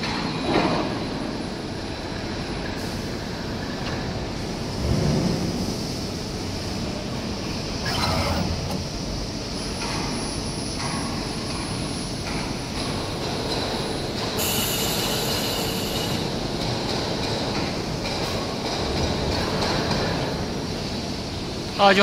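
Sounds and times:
laser cutting machine running: 7.4s - 10.3s.

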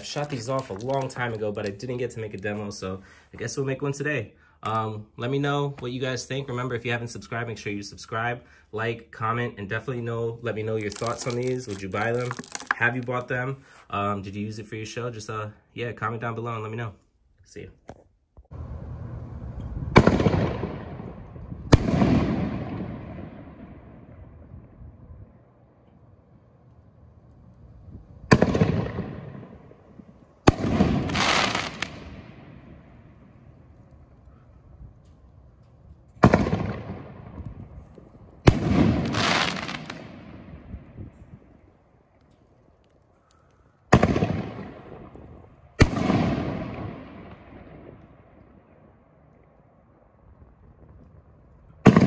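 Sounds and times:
firework crackling: 0.0s - 1.9s, 10.8s - 13.2s, 30.4s - 32.6s, 38.4s - 40.4s
firework booms: 19.6s - 24.8s, 28.2s - 33.5s, 36.2s - 41.5s, 43.9s - 48.3s.

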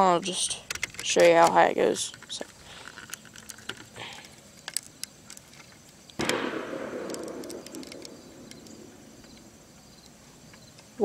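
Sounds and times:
distant gunshot boom: 6.2s - 9.6s
faint clicks: 7.0s - 10.9s.

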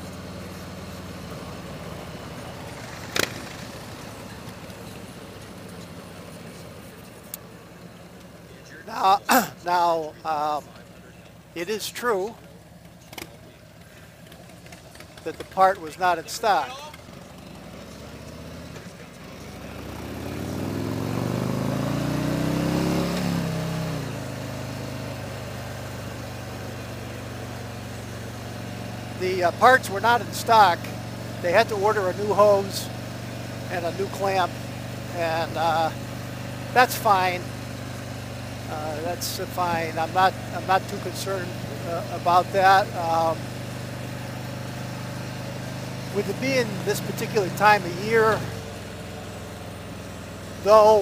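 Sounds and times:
wind and road noise: 0.0s - 7.6s, 16.4s - 31.6s
motorcycle engine running: 0.0s - 51.0s
sharp click: 3.1s - 3.4s.

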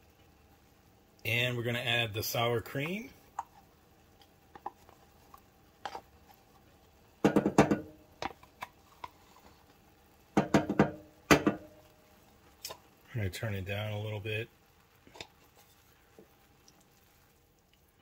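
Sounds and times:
wooden spoon knocking and scraping: 7.2s - 9.5s, 10.4s - 11.7s.

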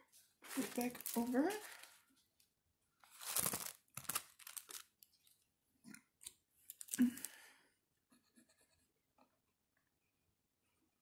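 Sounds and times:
paper rustling: 0.4s - 2.3s, 3.0s - 5.4s.

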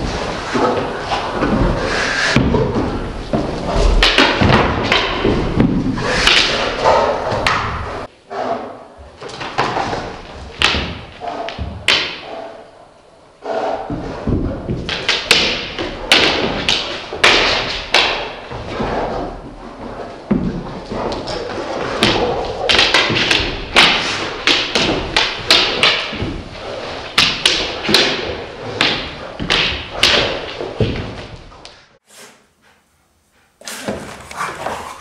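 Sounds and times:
dogs play-fighting thumps: 33.7s - 35.0s.

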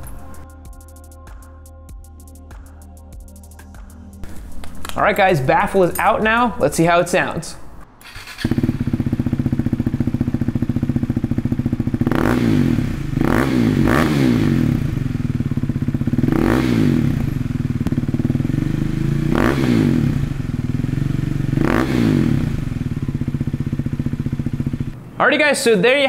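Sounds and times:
motorcycle engine idling and revving: 8.0s - 25.1s.

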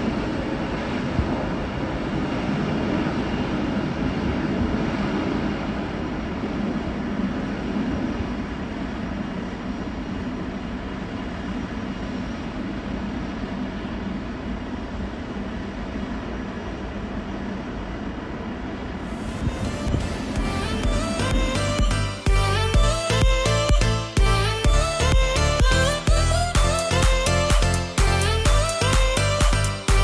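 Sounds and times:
distant jet engine noise: 0.0s - 21.9s.

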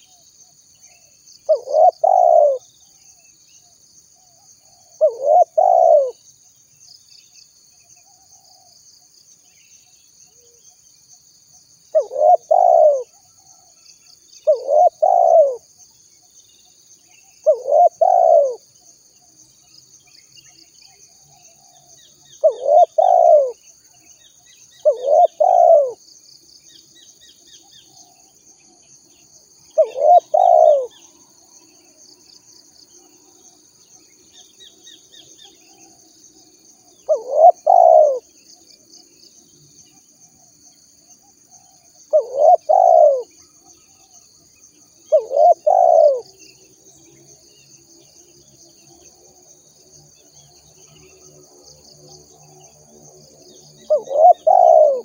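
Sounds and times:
small birds chirping: 0.0s - 11.1s, 11.9s - 55.0s
high insect drone: 0.0s - 55.0s
dove cooing: 1.5s - 2.6s, 4.7s - 6.2s, 11.9s - 13.2s, 14.4s - 15.6s, 17.4s - 18.6s, 22.4s - 23.6s, 24.8s - 26.0s, 29.7s - 31.0s, 37.0s - 38.3s, 42.1s - 43.3s, 45.1s - 46.3s, 53.8s - 55.0s.

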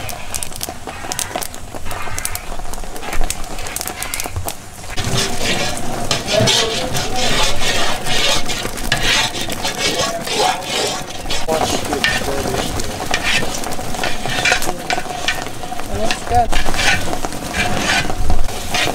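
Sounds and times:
mush bubbling with sizzling hiss: 0.0s - 18.9s
wood fire crackling: 0.0s - 18.9s
paddle scraping in kettle: 4.9s - 18.9s.

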